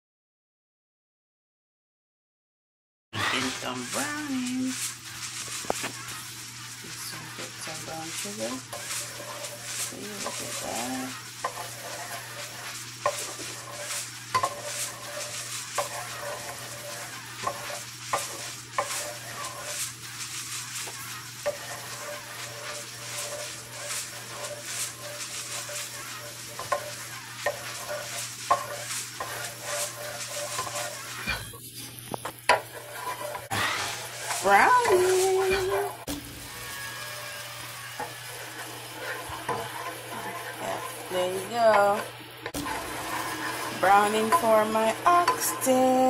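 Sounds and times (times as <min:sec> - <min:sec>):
wooden spoon scraping frying pan: 0:03.3 - 0:46.0
sugar bubbling and sizzling: 0:03.4 - 0:46.0.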